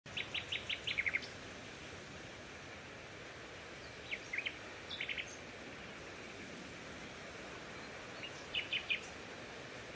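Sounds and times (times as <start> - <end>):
outdoor background noise: 0.0 - 9.9
small bird chirping: 0.1 - 1.4, 3.8 - 6.0, 7.7 - 9.2.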